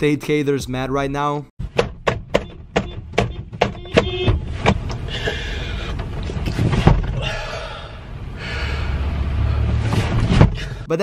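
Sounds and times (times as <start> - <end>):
sharp thumps: 1.6 - 7.2.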